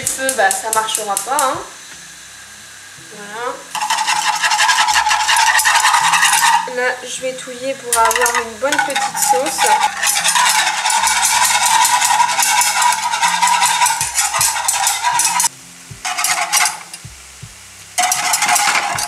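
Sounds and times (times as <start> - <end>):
metal whisk scraping saucepan: 3.7 - 15.5, 16.1 - 17.0, 18.0 - 19.0.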